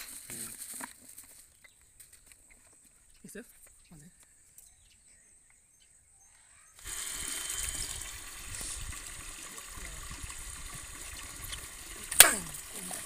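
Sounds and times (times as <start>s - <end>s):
water running from garden hose: 6.8s - 13.0s.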